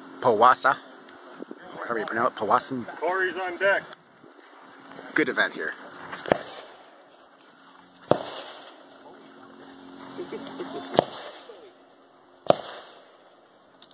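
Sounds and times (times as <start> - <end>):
gunshots: 6.3 - 6.8, 8.1 - 8.8, 10.9 - 11.5, 12.4 - 13.2.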